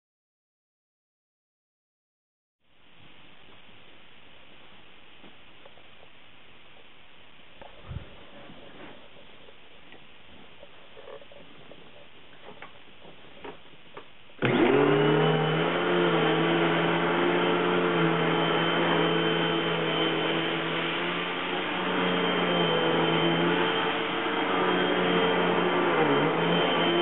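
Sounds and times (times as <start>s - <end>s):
vacuum cleaner motor whining: 14.4s - 27.0s.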